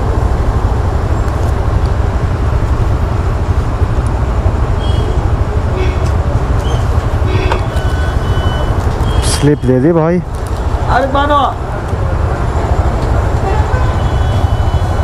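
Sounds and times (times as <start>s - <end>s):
motorcycle engine idling: 0.0s - 9.8s
highway traffic: 0.0s - 15.0s.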